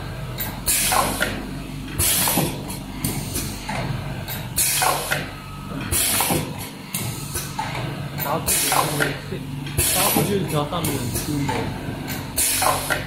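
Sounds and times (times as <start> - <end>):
steady machine hum: 0.0 - 13.0
pneumatic air hiss bursts: 2.0 - 2.5.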